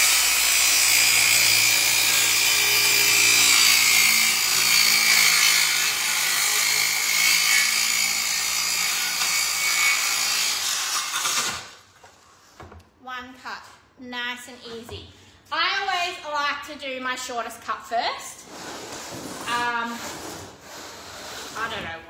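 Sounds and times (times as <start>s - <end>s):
circular saw cutting plywood: 0.0s - 11.7s.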